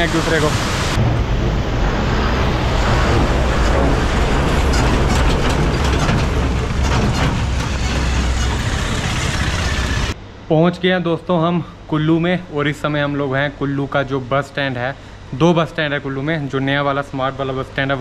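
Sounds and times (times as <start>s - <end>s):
traffic engine rumble: 0.0s - 10.2s
rattling clatter: 2.8s - 10.2s.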